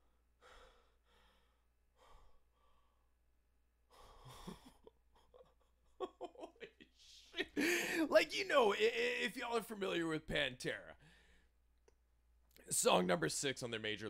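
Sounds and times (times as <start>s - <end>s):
man breathing softly: 0.0s - 4.8s, 11.0s - 11.6s.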